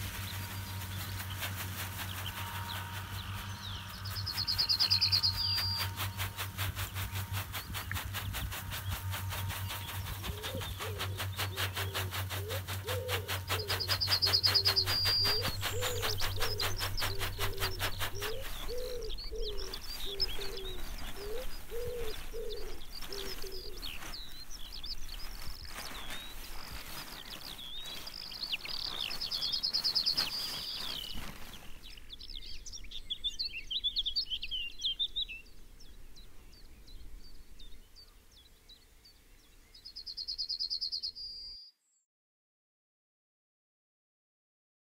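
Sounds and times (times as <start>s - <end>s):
low hum with rapid ticking: 0.0s - 23.0s
low repeated bird calls: 0.0s - 41.8s
birds singing and chirping: 0.0s - 42.0s.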